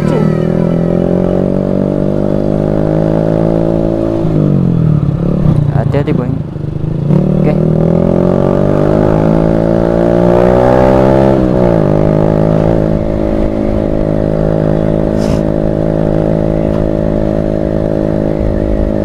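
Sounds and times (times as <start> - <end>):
motorcycle engine: 0.0 - 19.0.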